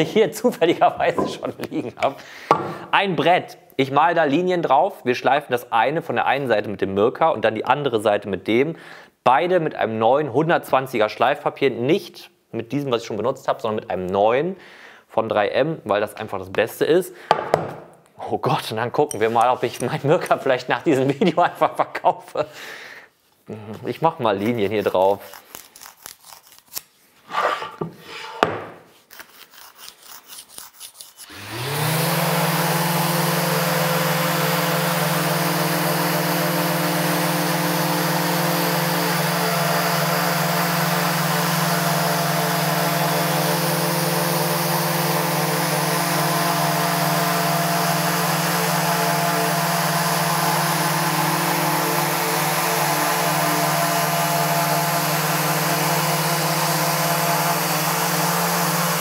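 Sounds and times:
pencil scratching on wood: 29.1 - 31.3
orbital sanders running: 31.2 - 59.0.

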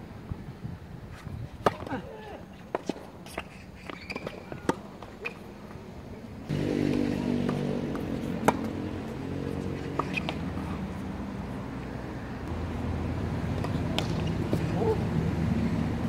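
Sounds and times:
tennis ball hit by rackets: 1.6 - 1.9, 6.5 - 10.8, 13.5 - 15.0
tennis ball bouncing: 6.5 - 12.6, 13.4 - 14.8.

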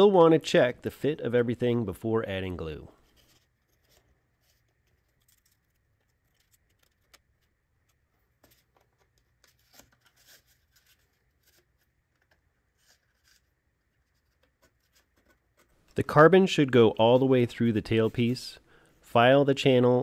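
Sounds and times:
faint clicks and scrapes: 3.0 - 16.0.

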